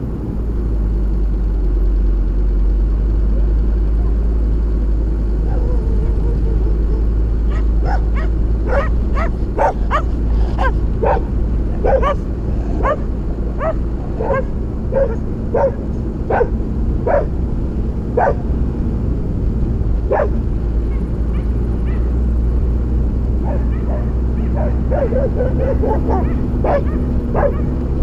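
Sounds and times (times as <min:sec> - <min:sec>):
diesel engine droning: 0:00.0 - 0:28.0
dog barking: 0:07.4 - 0:17.4, 0:18.2 - 0:18.5, 0:20.1 - 0:22.2, 0:23.4 - 0:27.8.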